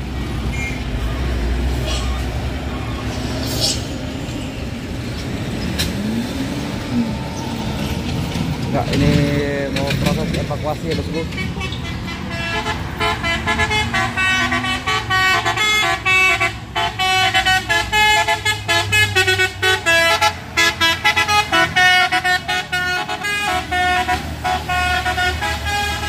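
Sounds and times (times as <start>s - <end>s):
musical vehicle horn: 11.3s - 26.0s.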